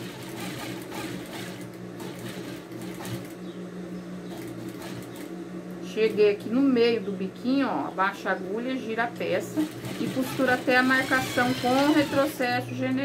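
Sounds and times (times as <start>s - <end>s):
sewing machine running: 0.0s - 3.4s, 4.3s - 5.3s, 9.4s - 12.6s.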